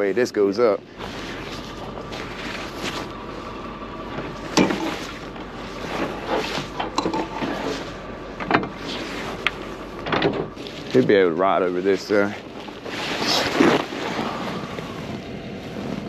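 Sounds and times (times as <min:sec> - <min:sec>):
tow truck engine running: 0:00.0 - 0:16.0
steel cable being pulled: 0:04.4 - 0:08.1, 0:08.8 - 0:15.8
metal clanks and clicks: 0:06.6 - 0:07.8.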